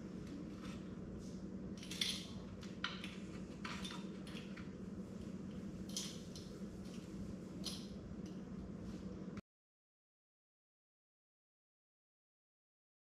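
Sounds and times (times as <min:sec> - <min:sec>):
steady low hum: 0:00.0 - 0:09.4.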